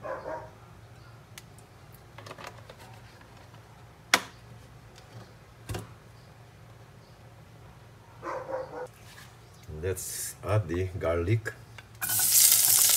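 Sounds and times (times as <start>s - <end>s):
oil poured into pot clicking: 12.0s - 12.9s.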